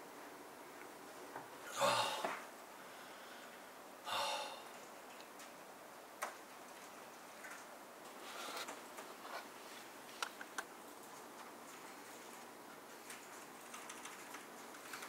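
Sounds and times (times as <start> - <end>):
man sighing heavily: 1.7 - 2.4, 4.0 - 4.7
deep breath: 1.8 - 4.7.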